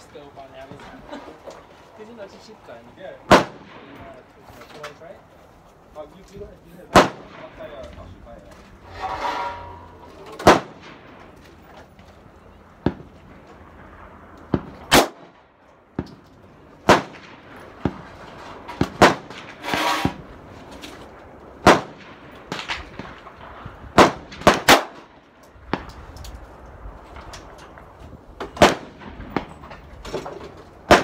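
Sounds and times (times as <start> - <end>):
gunshots: 3.2 - 4.2, 6.9 - 7.9, 10.4 - 11.2, 13.8 - 15.4, 16.8 - 20.2, 21.6 - 25.1, 28.5 - 29.7.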